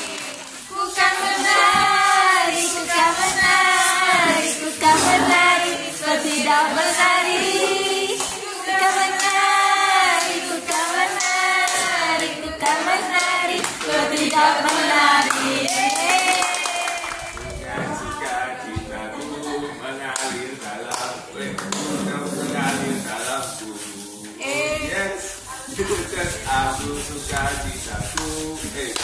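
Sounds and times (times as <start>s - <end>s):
people singing together: 0.0s - 29.0s
hand claps: 7.4s - 18.4s, 20.1s - 22.9s, 27.3s - 29.0s.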